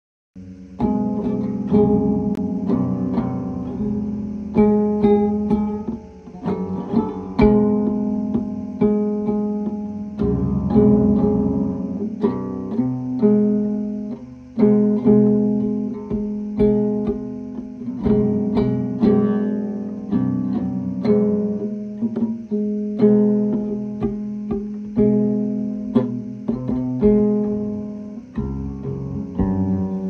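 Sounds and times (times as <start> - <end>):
plucked acoustic guitar music: 0.7 - 30.0.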